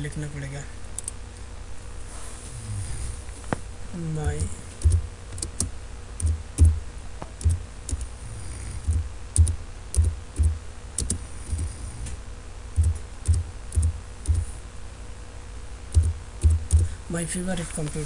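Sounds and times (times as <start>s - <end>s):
keyboard keystrokes: 4.3s - 8.1s, 8.9s - 11.2s, 15.9s - 16.9s.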